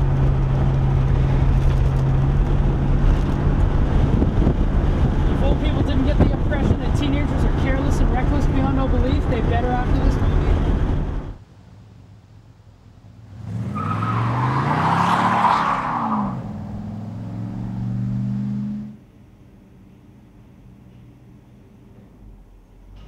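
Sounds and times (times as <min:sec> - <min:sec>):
car engine accelerating past: 0:13.2 - 0:19.0.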